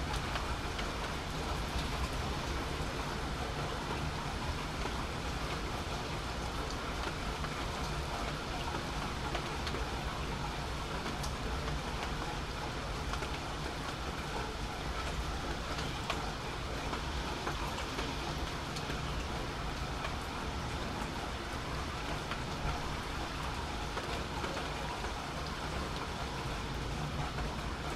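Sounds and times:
rain falling: 0:00.0 - 0:27.9
raindrops ticking close by: 0:00.0 - 0:27.9.

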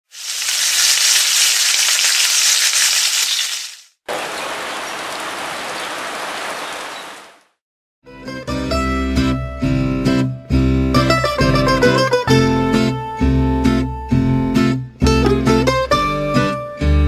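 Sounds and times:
food sizzling on a hot grill: 0:00.1 - 0:03.8
heavy rain falling: 0:00.1 - 0:07.4.

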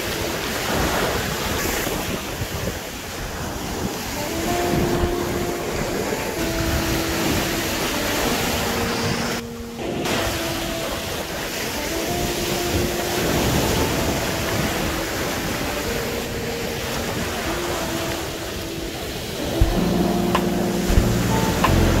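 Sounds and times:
ocean surf breaking on sand: 0:00.0 - 0:22.0
faint background music: 0:04.0 - 0:22.0.

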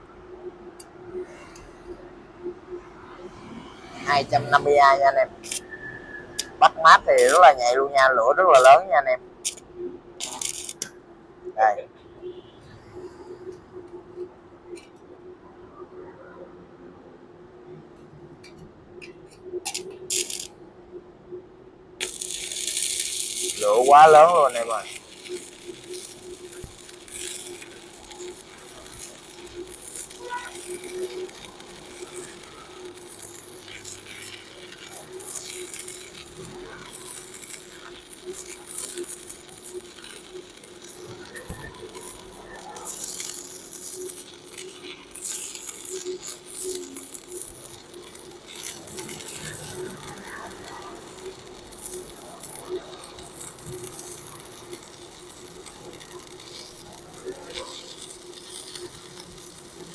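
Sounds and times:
welding arc crackling: 0:03.8 - 0:11.9, 0:18.4 - 0:20.6, 0:21.9 - 0:59.9
welder hum: 0:04.2 - 0:09.6, 0:10.2 - 0:10.9, 0:19.7 - 0:20.5, 0:22.0 - 0:59.9.

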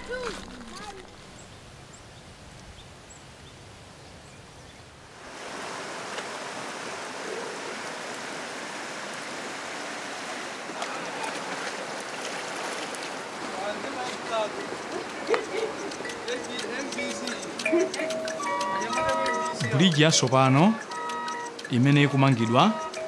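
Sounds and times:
stream running over rocks: 0:05.0 - 0:23.0
light water splashes: 0:05.2 - 0:21.8.

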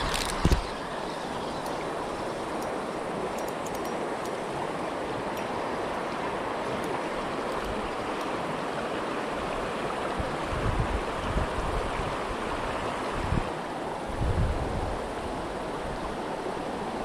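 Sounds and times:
faint high ticks: 0:00.0 - 0:04.5, 0:05.3 - 0:08.4
creek water rushing: 0:00.0 - 0:17.0.

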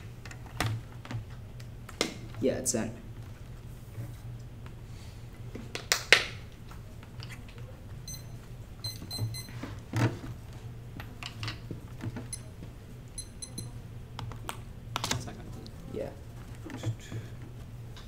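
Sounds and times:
high electronic beeps: 0:08.1 - 0:09.5, 0:13.2 - 0:13.8.

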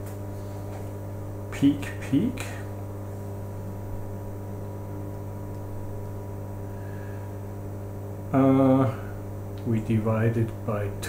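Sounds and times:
electrical hum: 0:00.0 - 0:11.0
person speaking: 0:08.3 - 0:11.0.

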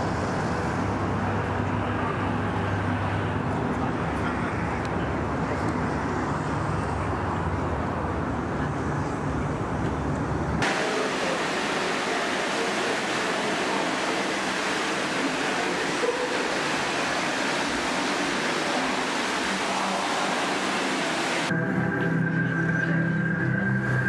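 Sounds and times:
city traffic rumble: 0:00.0 - 0:21.6
shallow water flowing: 0:10.6 - 0:21.5.

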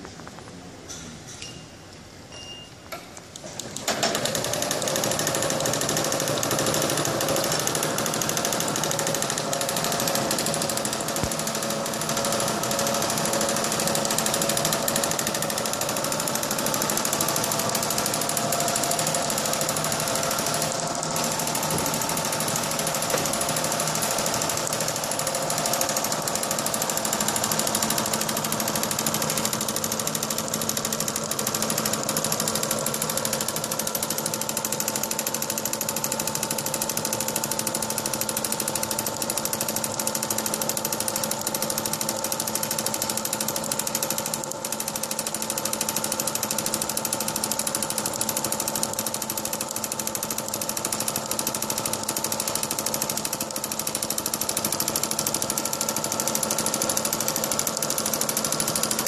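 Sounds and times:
machine mechanical chatter: 0:03.2 - 0:59.0
machine hum: 0:05.6 - 0:31.8.

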